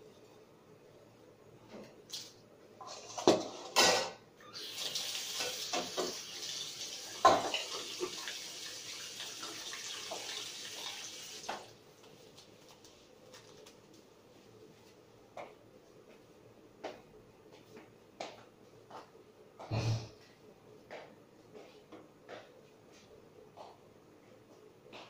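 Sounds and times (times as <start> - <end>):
metal utensils and bowl clattering: 2.8 - 4.2, 7.2 - 8.2
dishes clinking: 2.9 - 4.2, 7.2 - 8.1.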